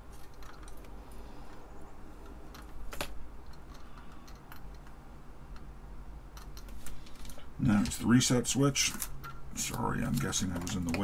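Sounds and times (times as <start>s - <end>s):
low steady hum: 0.0s - 11.0s
light clicks and taps: 8.9s - 11.0s.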